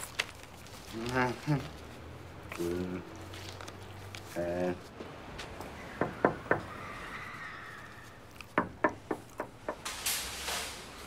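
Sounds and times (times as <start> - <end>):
knocking on glass window: 8.6 - 9.8.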